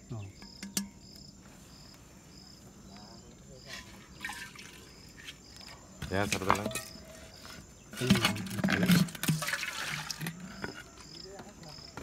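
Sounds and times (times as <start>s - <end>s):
crickets chirping: 0.0s - 12.0s
clay pot knock and clatter: 0.3s - 1.0s.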